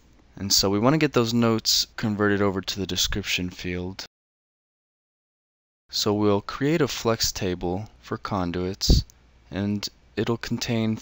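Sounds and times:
person speaking: 5.9s - 11.0s.

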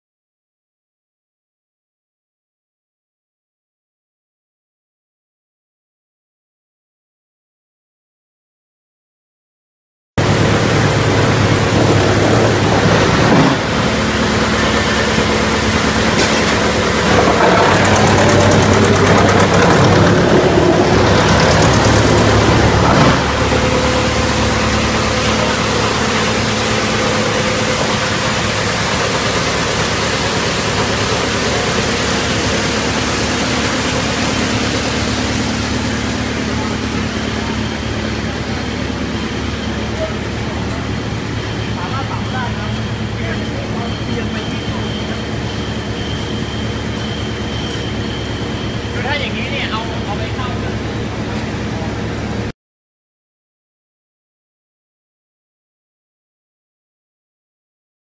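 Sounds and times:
wood chipper running: 10.2s - 52.5s.

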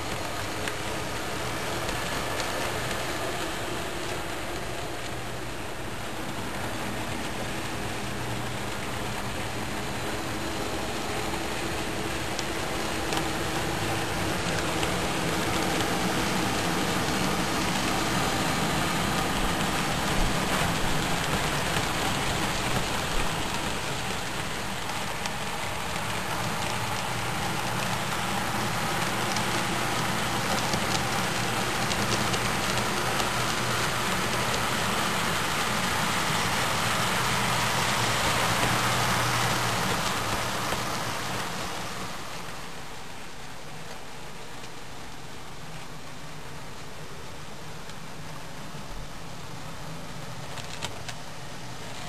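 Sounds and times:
model train wheels clattering: 6.3s - 42.7s.

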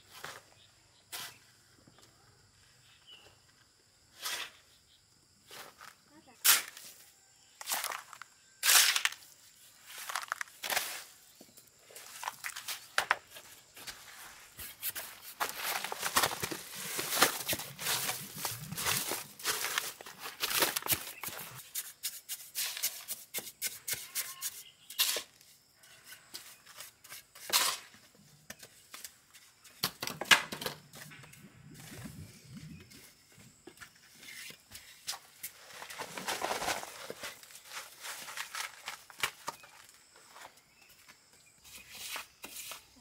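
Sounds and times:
trowel scraping concrete mix: 14.2s - 29.5s, 41.7s - 43.0s.

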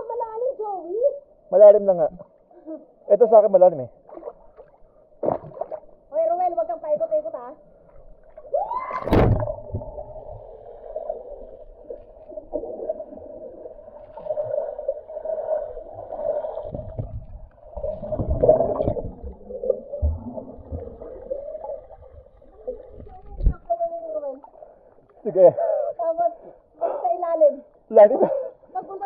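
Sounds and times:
water splash: 4.1s - 5.9s, 8.3s - 23.6s
underwater rushing river water: 7.6s - 25.1s.

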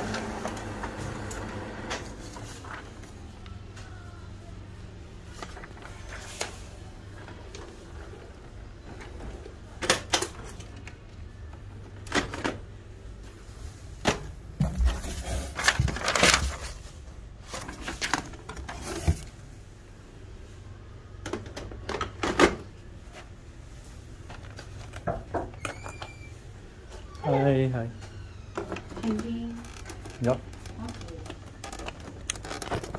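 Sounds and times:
cardboard and packing rustles: 0.0s - 4.0s, 5.2s - 9.7s, 13.3s - 19.5s, 28.6s - 32.9s
packing material crinkling: 15.0s - 19.1s, 29.6s - 32.9s.

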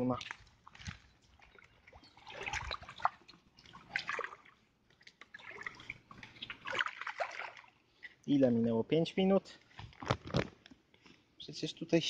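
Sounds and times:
shallow water sloshing and splashing: 0.0s - 8.2s.

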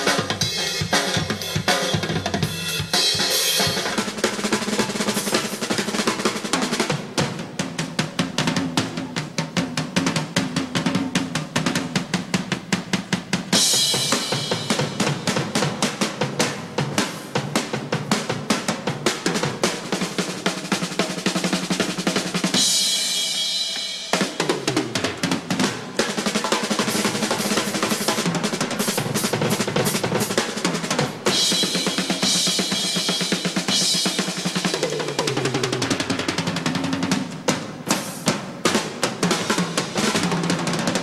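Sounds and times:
snare and tom rolls: 0.0s - 41.0s.

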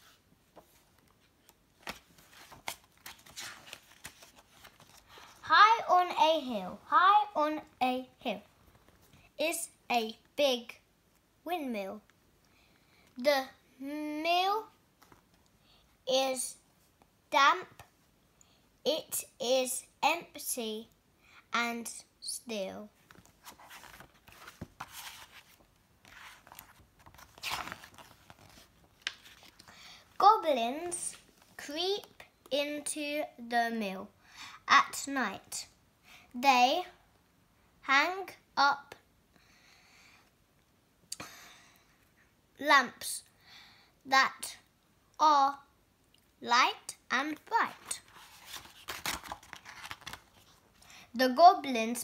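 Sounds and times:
paper pages turning: 0.6s - 5.5s, 23.0s - 29.7s, 47.4s - 50.8s.

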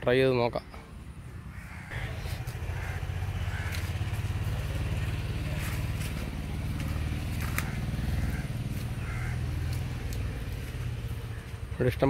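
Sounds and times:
low engine running: 1.6s - 12.0s.

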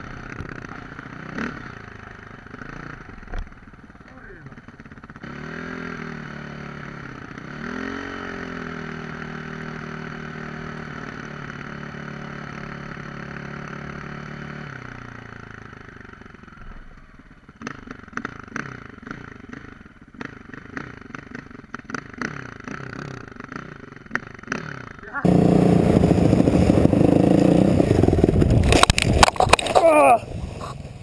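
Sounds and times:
dirt bike engine: 0.0s - 31.0s
engine knocks and pops: 0.3s - 0.9s, 3.1s - 3.7s, 27.9s - 29.9s.

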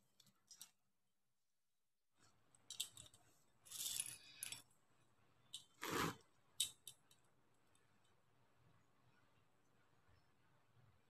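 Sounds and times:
beads clicking and rustling: 2.6s - 4.6s.

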